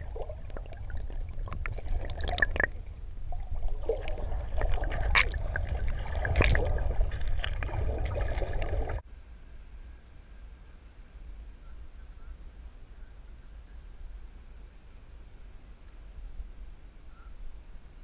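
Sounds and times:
muffled underwater river sloshing: 0:00.0 - 0:09.0.

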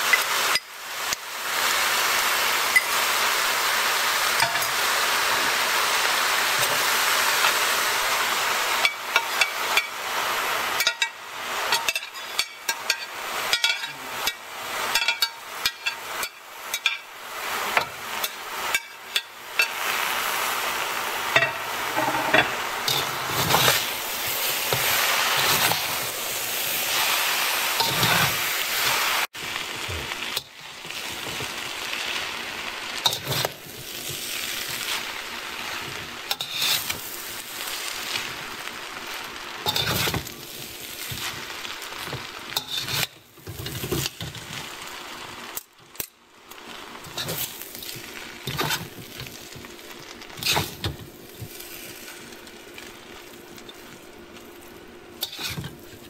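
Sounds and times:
food sizzling in a hot wok: 0:00.0 - 0:56.0
metal spatula scraping a wok: 0:11.7 - 0:17.0, 0:21.4 - 0:29.2, 0:33.0 - 0:37.9, 0:39.6 - 0:44.3, 0:47.1 - 0:49.4, 0:50.3 - 0:52.1, 0:55.2 - 0:56.0.

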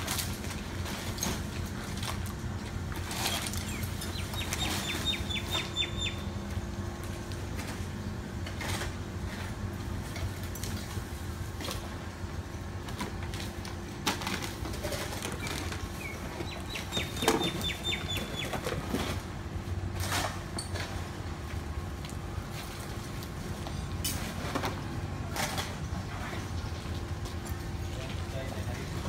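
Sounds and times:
rakes and brooms scraping concrete: 0:00.0 - 0:05.7
low urban hum: 0:00.0 - 0:29.0.

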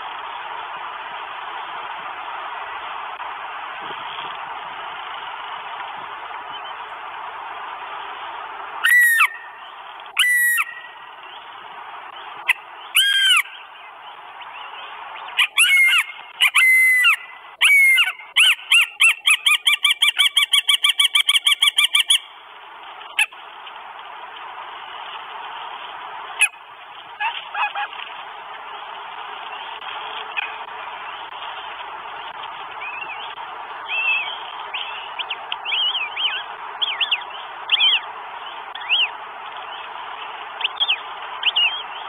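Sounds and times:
hawk wailing calls: 0:08.8 - 0:09.5, 0:10.2 - 0:10.9, 0:15.4 - 0:22.2.

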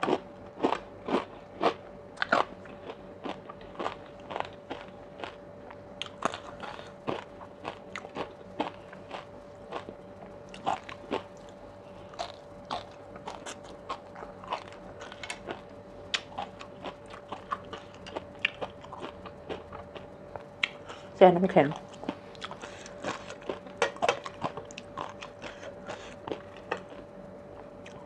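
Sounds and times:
chewing with crunchy pops: 0:00.0 - 0:28.0.

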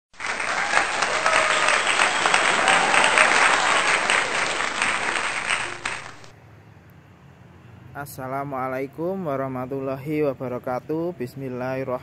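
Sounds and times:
crowd clapping: 0:00.1 - 0:06.3
people cheering: 0:00.1 - 0:06.3.

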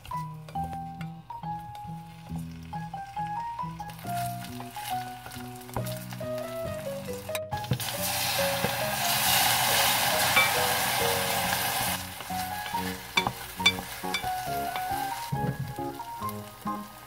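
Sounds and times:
background music: 0:00.0 - 0:17.0
soft frying: 0:00.0 - 0:17.0
sauce sizzling in hot pot: 0:00.1 - 0:17.0
wooden spatula clicking on pot: 0:12.6 - 0:15.9.

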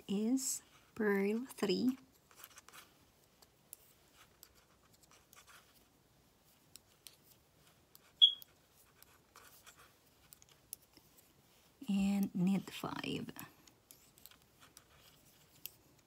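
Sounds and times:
knitting needle clicks and scratches: 0:00.6 - 0:16.0
sharp high ping: 0:08.2 - 0:08.4.

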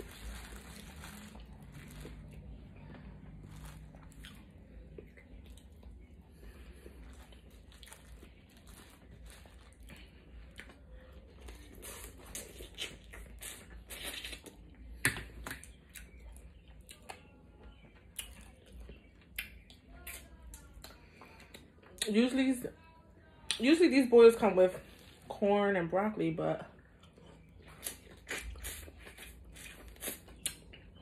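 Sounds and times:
plastic bag crinkling: 0:00.0 - 0:04.4, 0:06.8 - 0:10.2
wet chewing: 0:00.0 - 0:22.1, 0:26.8 - 0:31.0.

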